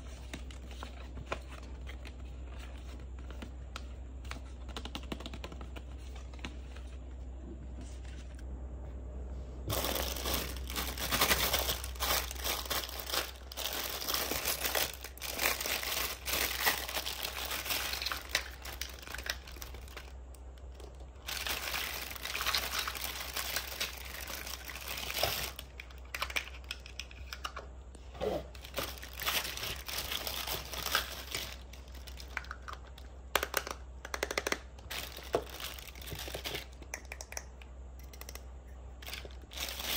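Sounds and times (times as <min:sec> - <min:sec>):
plastic bag crinkling: 0:09.7 - 0:26.3, 0:28.6 - 0:32.6, 0:34.9 - 0:36.7, 0:39.0 - 0:39.9.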